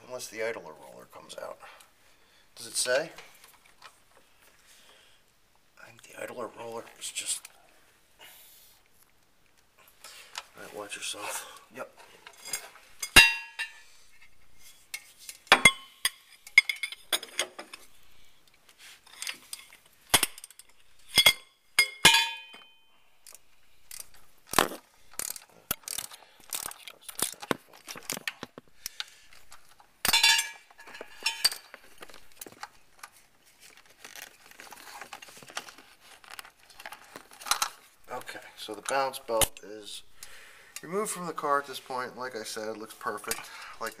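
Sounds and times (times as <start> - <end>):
metal tools clinking: 12.2 - 13.9, 14.9 - 17.9, 19.1 - 24.3, 29.3 - 32.7.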